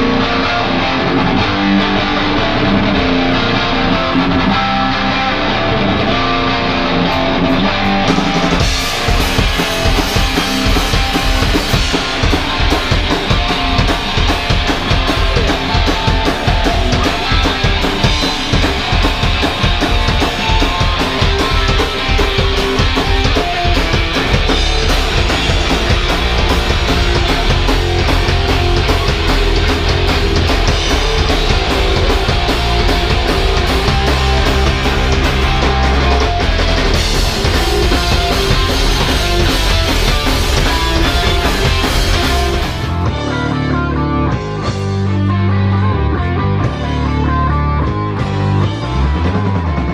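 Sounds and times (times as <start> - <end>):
electric guitar strumming: 0.0 - 49.9
drum kit fast beat: 7.7 - 43.8.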